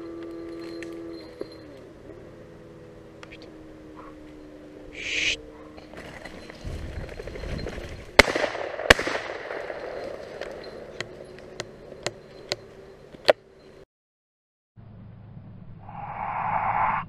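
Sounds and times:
shotgun blasts with echo: 8.2 - 10.0.

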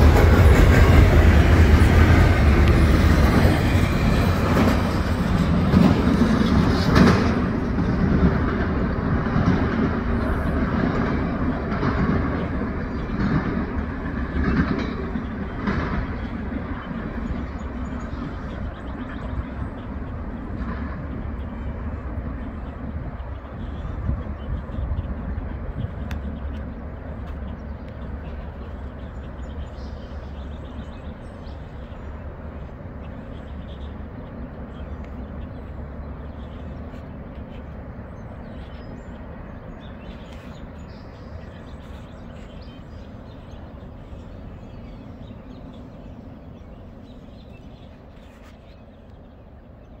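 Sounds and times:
freight train rumble: 0.0 - 50.0.

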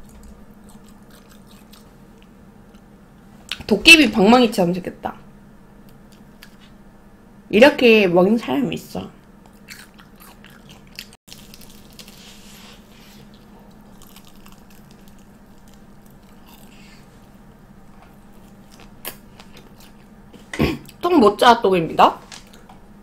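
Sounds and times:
crunching fried food: 0.0 - 2.8, 9.4 - 20.2.

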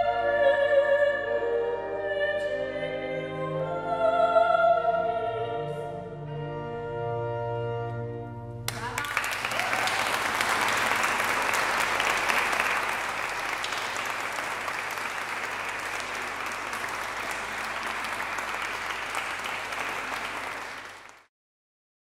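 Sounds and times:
small audience applauding: 8.7 - 21.3.

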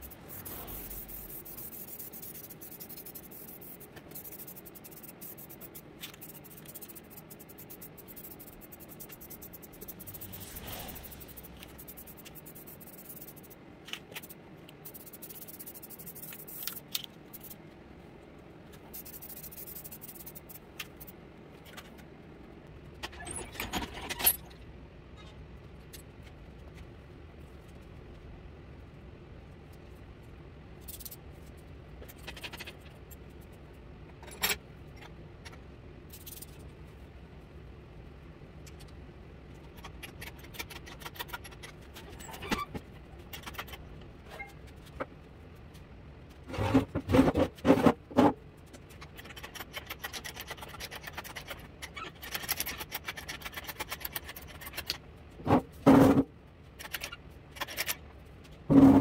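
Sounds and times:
steady low hum: 0.0 - 23.2
metal tools clicking and scraping: 34.1 - 36.6, 48.9 - 55.0, 56.8 - 58.0.

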